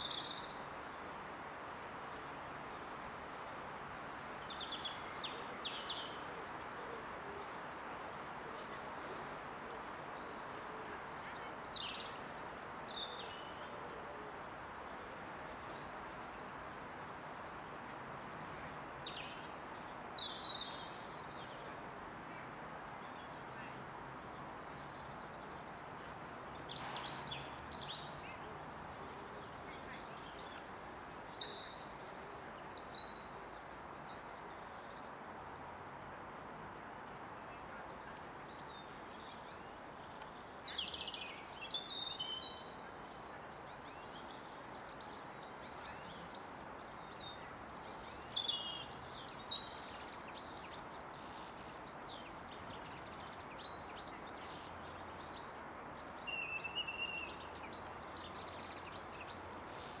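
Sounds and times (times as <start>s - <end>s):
small birds chirping: 38.0s - 60.0s.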